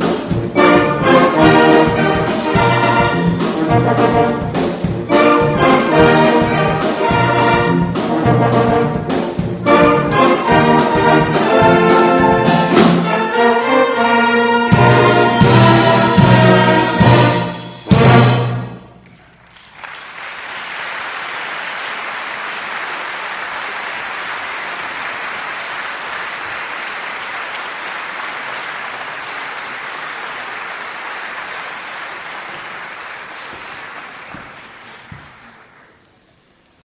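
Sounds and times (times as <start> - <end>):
audience applause: 19.1 - 36.3.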